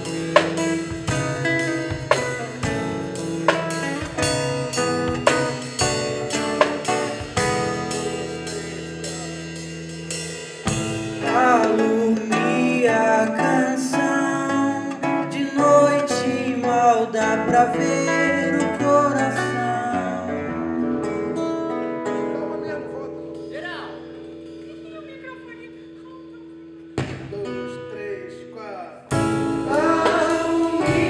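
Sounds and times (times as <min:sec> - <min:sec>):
classical guitar playing: 0:00.0 - 0:10.0, 0:10.6 - 0:27.8
person singing: 0:11.2 - 0:21.4, 0:29.3 - 0:31.0.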